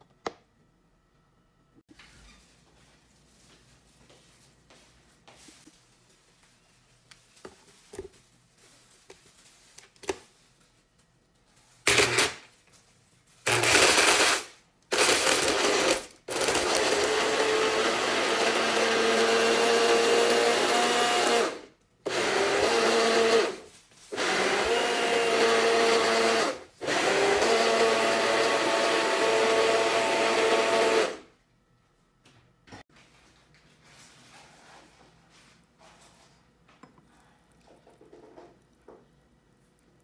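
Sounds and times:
blender motor running: 11.9s - 12.4s, 13.5s - 31.2s.

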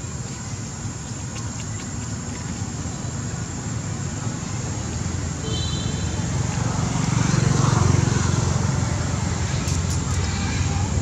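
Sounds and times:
motor traffic rumble: 0.0s - 11.0s
vehicle approaching: 6.1s - 11.0s.

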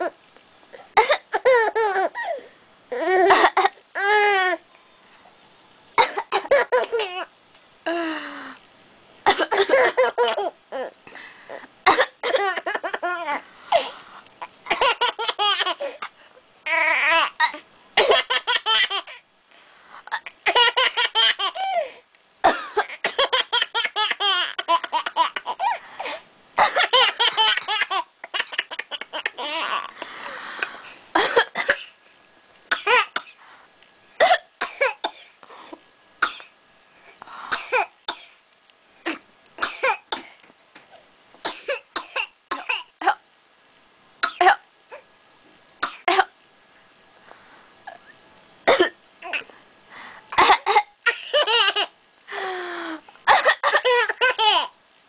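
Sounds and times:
baby laughing: 1.3s - 3.6s, 12.4s - 13.4s, 14.7s - 16.0s, 16.7s - 19.2s, 20.1s - 21.9s, 22.8s - 29.9s, 53.9s - 54.7s
person coughing: 31.2s - 32.0s, 53.3s - 54.5s.

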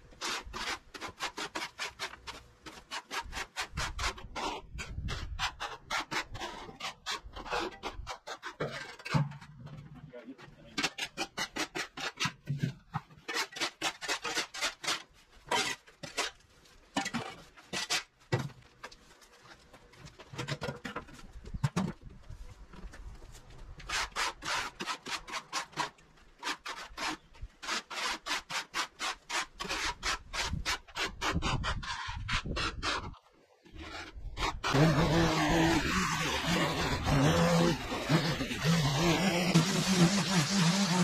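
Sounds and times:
garden tools scraping pavement: 0.0s - 41.0s
plastic rake dragging on ground: 23.8s - 41.0s.

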